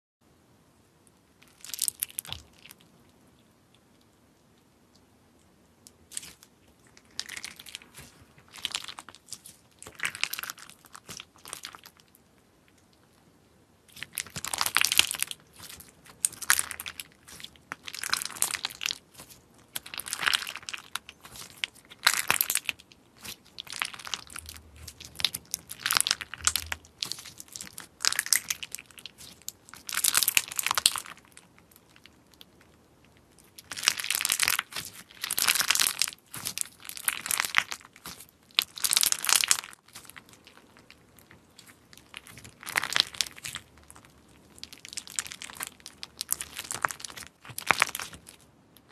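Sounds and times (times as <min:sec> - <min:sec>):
slime crinkling crackles: 0:01.4 - 0:03.0, 0:06.0 - 0:13.2, 0:13.9 - 0:48.9.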